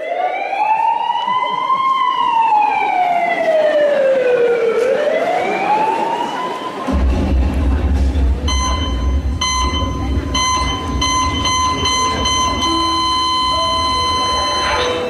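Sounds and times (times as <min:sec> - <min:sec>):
flatline tone: 0:08.5 - 0:15.0
heart monitor beeps: 0:08.5 - 0:15.0.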